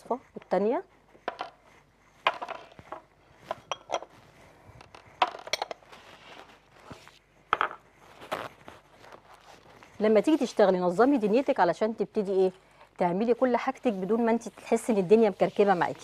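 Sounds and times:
bowls clinking on a countertop: 0:03.6 - 0:04.1.

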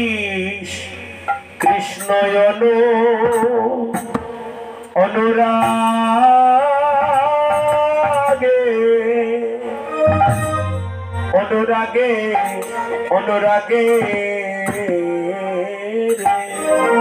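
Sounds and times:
man singing devotional song: 0:00.0 - 0:10.6, 0:11.2 - 0:17.0
musical accompaniment: 0:05.6 - 0:17.0.

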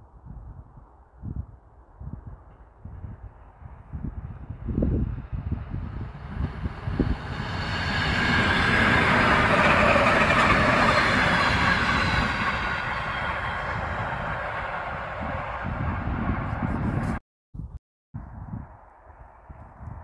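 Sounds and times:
wind buffeting microphone: 0:00.0 - 0:20.0
electric train running past: 0:02.5 - 0:17.1.

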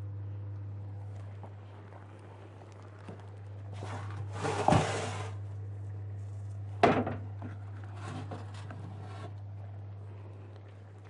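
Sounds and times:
rustling: 0:01.0 - 0:06.7.

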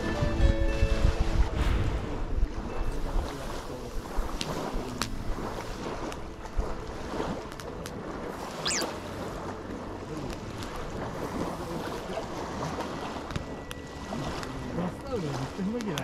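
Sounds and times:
wind noise on microphone: 0:00.0 - 0:09.8
brief high chirp: 0:08.6 - 0:09.0.

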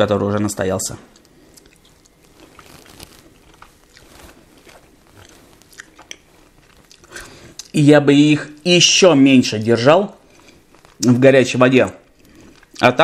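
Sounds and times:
person chewing: 0:01.1 - 0:07.8, 0:10.2 - 0:11.1, 0:12.1 - 0:12.9.

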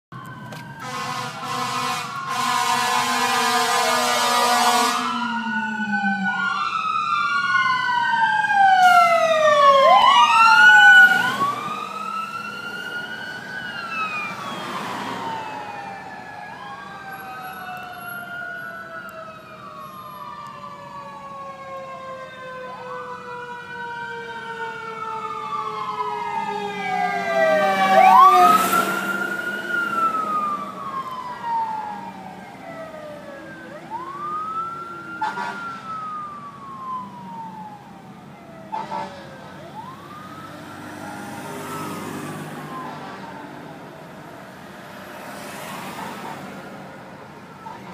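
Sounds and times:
wailing sirens: 0:00.1 - 0:47.9
air horn blasts: 0:00.8 - 0:05.2, 0:35.2 - 0:35.6, 0:38.7 - 0:39.2.

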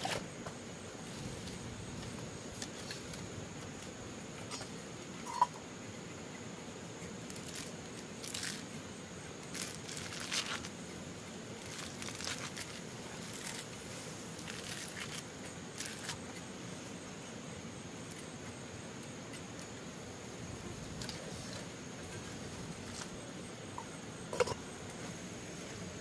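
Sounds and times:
rustling and crackling: 0:00.0 - 0:05.4, 0:11.5 - 0:17.0
steady background hiss: 0:00.0 - 0:26.0.

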